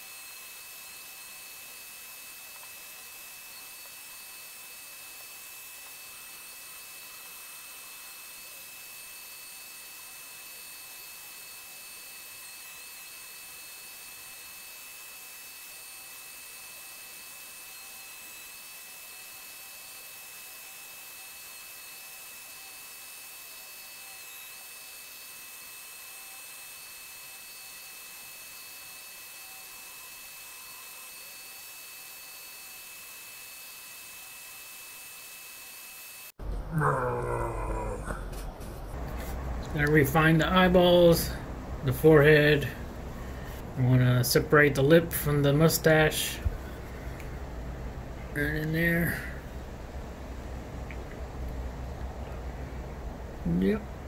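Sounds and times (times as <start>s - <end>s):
rotary tool grinding wood: 0.0s - 36.4s.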